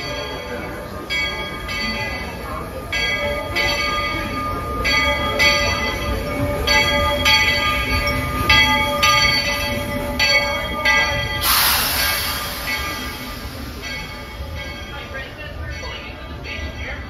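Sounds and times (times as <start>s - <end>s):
locomotive bell ringing: 0.0s - 17.0s
steam locomotive rolling: 0.0s - 17.0s
loud steam hiss: 9.5s - 15.4s.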